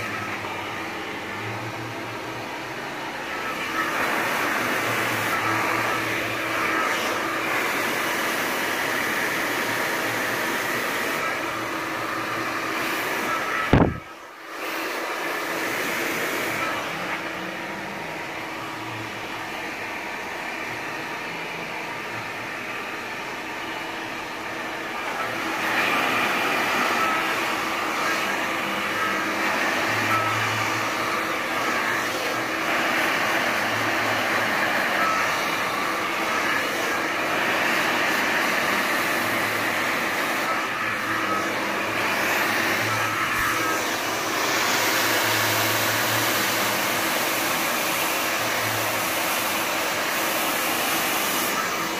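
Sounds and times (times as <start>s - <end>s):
hair dryer blowing: 0.0s - 51.9s.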